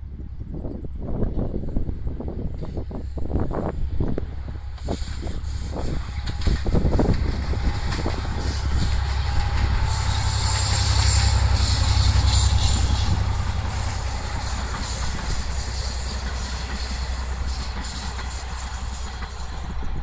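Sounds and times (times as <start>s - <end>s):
diesel locomotive engine rumble: 0.0s - 20.0s
train wheels clattering on rails: 2.4s - 20.0s.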